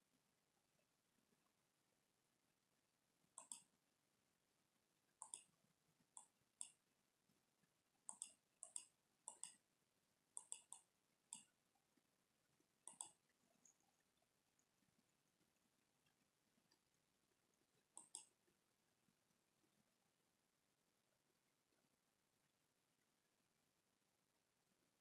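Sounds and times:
faint computer mouse clicks: 3.4 - 3.7, 5.2 - 5.5, 6.2 - 6.8, 8.1 - 9.6, 10.4 - 11.6, 12.8 - 13.8, 17.9 - 18.4.

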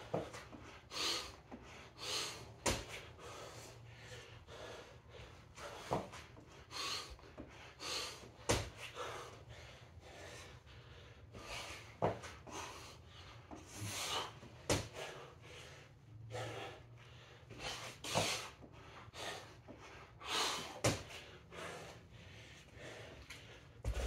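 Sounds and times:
man breathing hard: 0.0 - 24.0.

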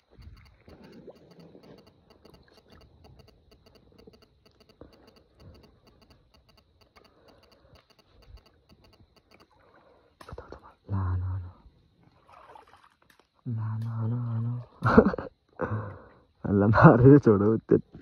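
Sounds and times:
faint even ticking: 0.0 - 9.6.

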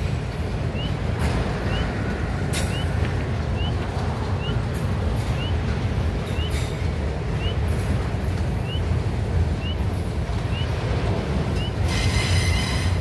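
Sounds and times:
freight cars rumbling: 0.0 - 13.0
short high squeak: 11.8 - 13.0.

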